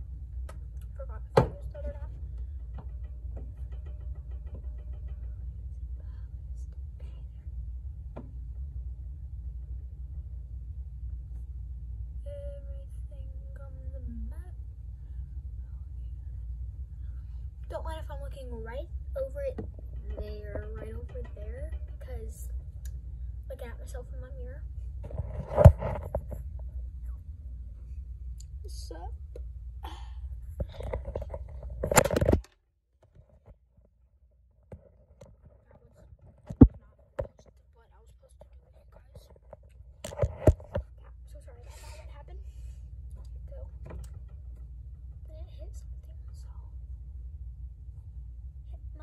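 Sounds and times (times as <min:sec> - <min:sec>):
low background rumble: 0:00.0 - 0:32.5, 0:33.1 - 0:49.0
phone handling noise: 0:30.7 - 0:32.6.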